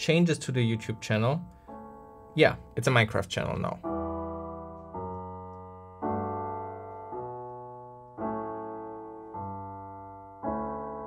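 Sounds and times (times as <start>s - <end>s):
digital piano chords: 0.0s - 11.0s.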